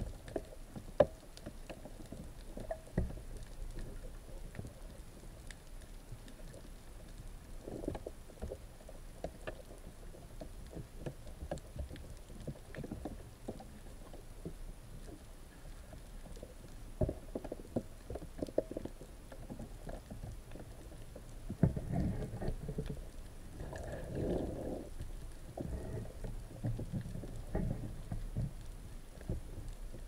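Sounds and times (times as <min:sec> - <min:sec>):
water rumble: 0:00.0 - 0:30.0
underwater knocks and thumps: 0:15.8 - 0:30.0.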